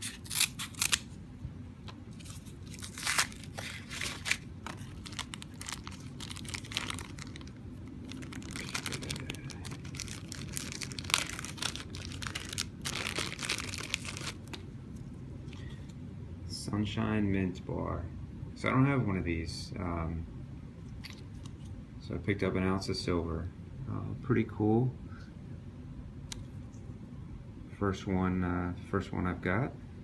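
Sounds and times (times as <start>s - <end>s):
cardboard rustling: 2.1s - 7.5s
plastic bag crinkling: 2.2s - 14.6s.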